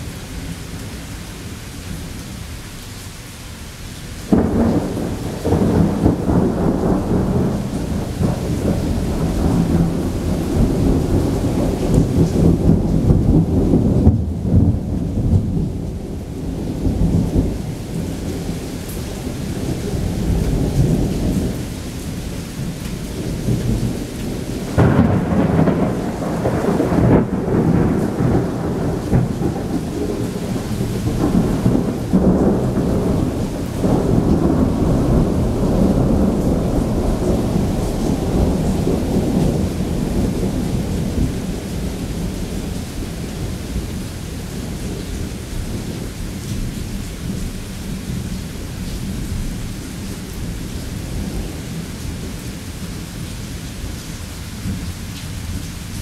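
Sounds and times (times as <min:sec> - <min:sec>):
heavy rain: 0:00.0 - 0:56.0
thunder rumbling: 0:04.3 - 0:52.6
sharp thunder crack: 0:24.8 - 0:41.3.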